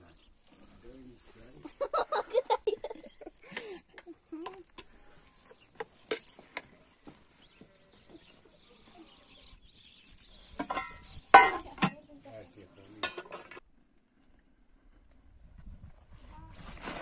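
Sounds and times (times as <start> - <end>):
cookware clatter: 10.6 - 12.0, 13.0 - 13.6
metal cookware clinking: 10.6 - 12.0, 13.0 - 13.6.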